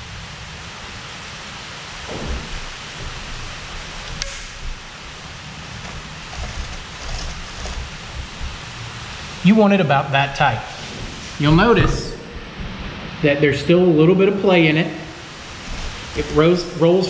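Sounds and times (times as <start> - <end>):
steady hiss: 0.0 - 17.0
sharp click: 4.1 - 4.5.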